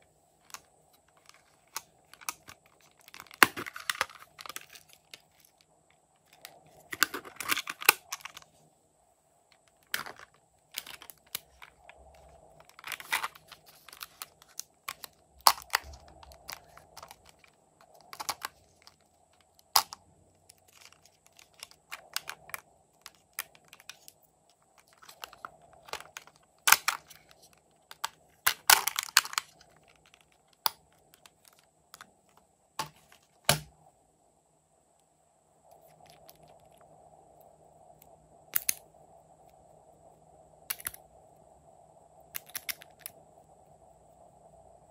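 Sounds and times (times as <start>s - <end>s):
plastic parts clicking and snapping: 0.4s - 8.5s, 9.5s - 33.7s, 38.6s - 38.8s, 40.7s - 41.0s, 42.4s - 43.2s.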